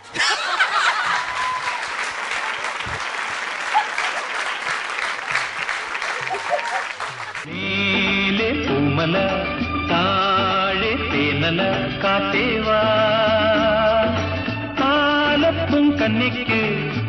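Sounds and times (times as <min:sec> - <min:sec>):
audience applauding: 0:00.2 - 0:07.5.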